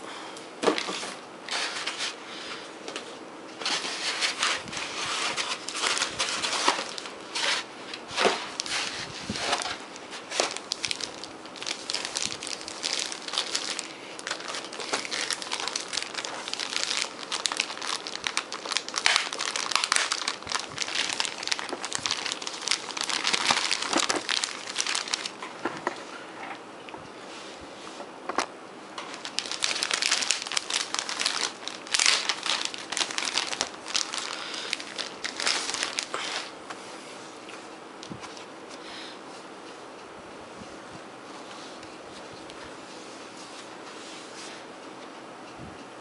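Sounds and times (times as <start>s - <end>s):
plastic wrap crinkling: 3.6s - 26.1s, 28.3s - 36.6s.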